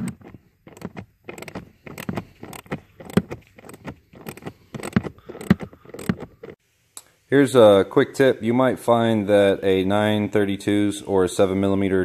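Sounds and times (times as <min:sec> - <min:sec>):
ratchet clicking: 0:00.7 - 0:06.3.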